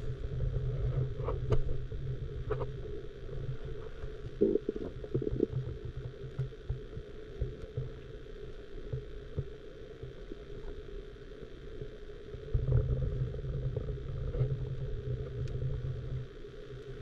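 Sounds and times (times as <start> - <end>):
muffled underwater river current: 0.0 - 17.0
faint ticks: 3.4 - 13.0, 13.6 - 17.0.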